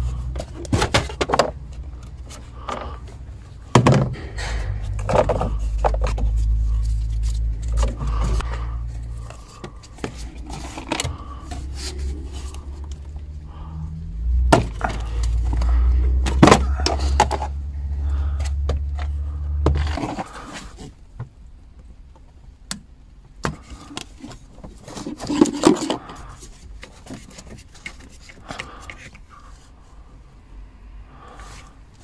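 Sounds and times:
steady low rumble: 0.0s - 20.4s.

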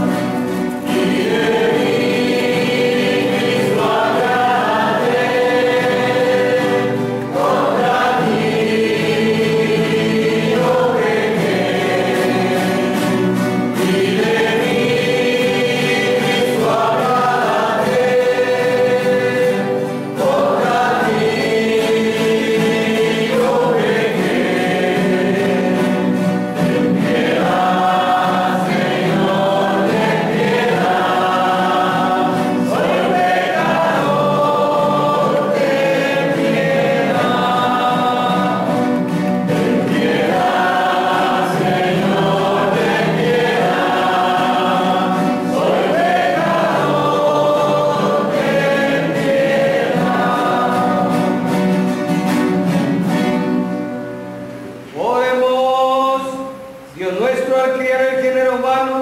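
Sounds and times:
acoustic guitars: 0.0s - 59.0s
group singing a hymn: 0.0s - 59.0s.

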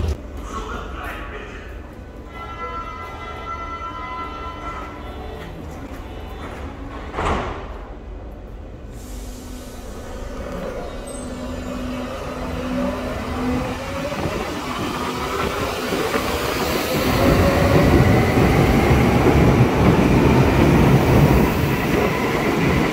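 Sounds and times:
train wheels rumbling: 5.4s - 22.9s.

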